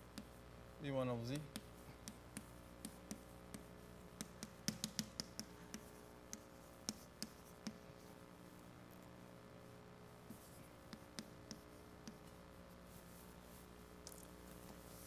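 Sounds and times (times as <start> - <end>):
faint room hum: 0.0 - 15.0
chalk tapping on blackboard: 0.1 - 0.4, 1.3 - 8.1, 10.3 - 12.3.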